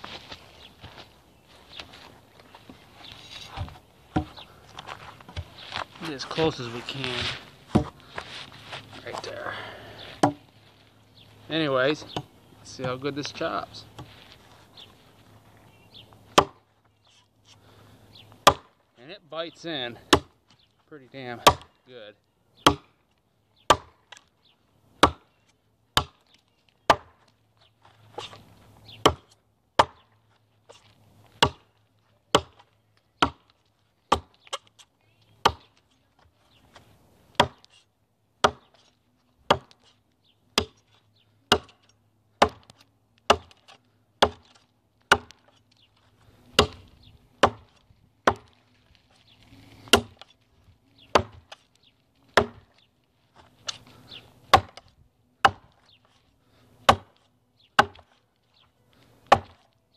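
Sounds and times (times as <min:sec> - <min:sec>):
chopper blade chopping wood: 0:10.2 - 0:10.4, 0:16.3 - 0:16.6, 0:18.4 - 0:18.8, 0:20.1 - 0:20.3, 0:21.4 - 0:21.7, 0:22.6 - 0:22.9, 0:23.7 - 0:24.2, 0:25.0 - 0:25.3, 0:26.0 - 0:26.3, 0:26.9 - 0:27.2, 0:29.0 - 0:30.1, 0:31.4 - 0:31.7, 0:32.3 - 0:33.5, 0:34.1 - 0:34.8, 0:35.4 - 0:35.7, 0:37.4 - 0:37.7, 0:38.4 - 0:38.8, 0:39.5 - 0:39.8, 0:40.6 - 0:40.8, 0:41.5 - 0:45.5, 0:46.6 - 0:48.6, 0:49.8 - 0:50.3, 0:51.1 - 0:51.6, 0:52.3 - 0:52.7, 0:54.5 - 0:55.8, 0:56.9 - 0:57.2, 0:57.8 - 0:58.1, 0:59.3 - 0:59.6.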